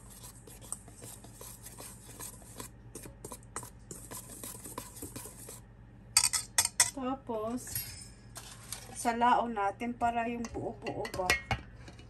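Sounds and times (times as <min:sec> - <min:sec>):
whisk scraping in metal bowl: 0:00.0 - 0:05.6.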